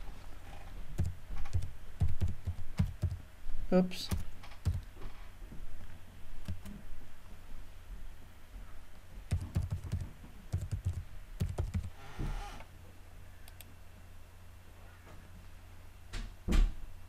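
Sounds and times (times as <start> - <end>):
computer keyboard typing: 1.0 - 3.2, 4.1 - 4.9, 6.4 - 6.8, 9.3 - 12.0.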